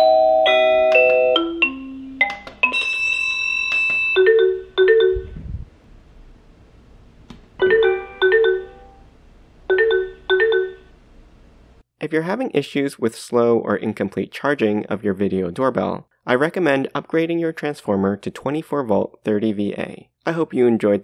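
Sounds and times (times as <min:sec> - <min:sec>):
electronic doorbell chime melody: 0:00.0 - 0:05.4, 0:07.6 - 0:09.0, 0:09.7 - 0:10.8.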